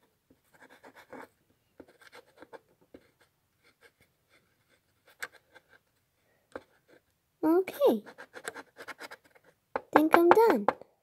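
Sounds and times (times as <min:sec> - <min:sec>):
pen scratching on paper: 0:00.5 - 0:05.9, 0:07.9 - 0:10.5
sharp taps: 0:09.7 - 0:10.8.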